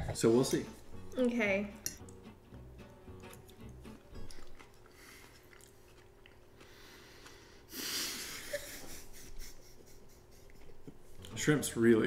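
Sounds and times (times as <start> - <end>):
woman laughing breathily: 7.7 - 10.9.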